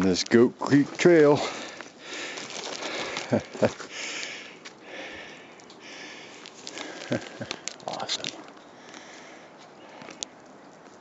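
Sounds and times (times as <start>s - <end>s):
footsteps crunching through snow: 0.7s - 3.9s
person breathing and sniffing: 1.4s - 7.7s.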